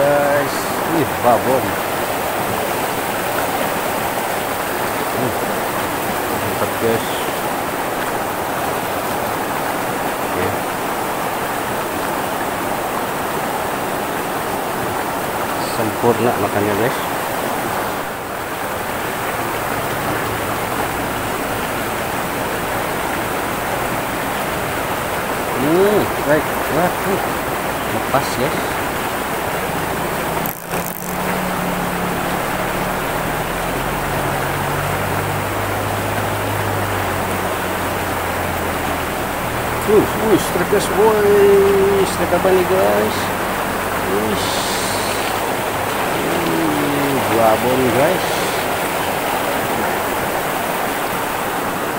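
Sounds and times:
river water rushing over rocks: 0.0s - 51.9s
low engine hum: 17.1s - 51.9s.

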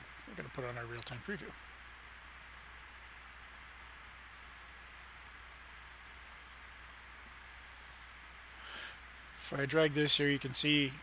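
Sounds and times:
low hum and hiss: 0.0s - 11.0s
computer mouse clicks: 1.0s - 1.4s, 2.5s - 3.5s, 4.9s - 5.2s, 6.0s - 7.2s, 8.1s - 8.6s.

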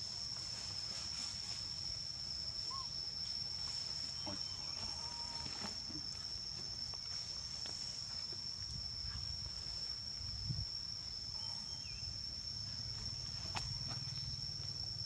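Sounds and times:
insect drone: 0.0s - 15.0s
faint chirps: 2.6s - 3.0s, 11.3s - 12.2s.

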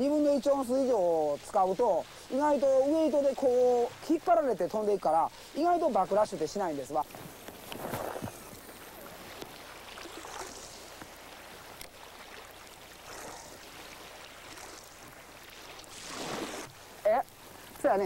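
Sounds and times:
lake waves lapping: 0.0s - 18.0s.

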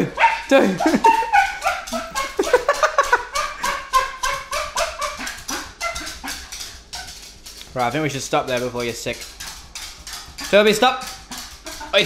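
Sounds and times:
dog whining and yipping: 0.2s - 2.7s, 3.3s - 7.3s
dog claws clicking on tiles: 0.2s - 12.0s.

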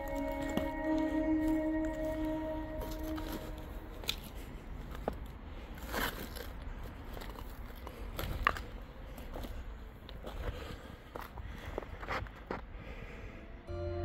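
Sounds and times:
held musical tone: 0.0s - 4.4s, 13.4s - 14.0s
footsteps crunching over debris: 0.0s - 12.6s.

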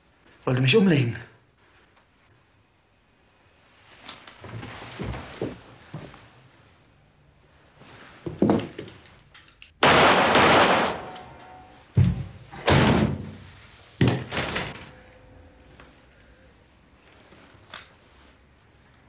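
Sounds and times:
echoing gunshots: 9.8s - 11.7s.

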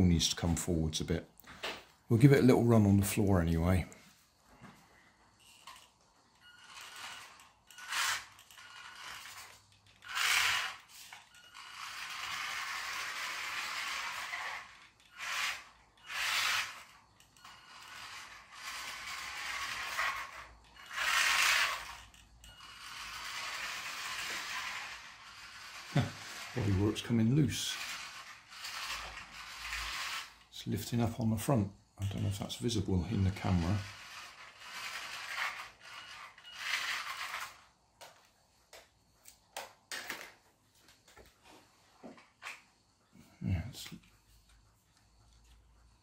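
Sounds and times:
plastic wheels on laminate floor: 0.0s - 31.4s, 32.0s - 46.0s
toy car motor whirring: 5.3s - 31.2s, 32.1s - 40.4s.

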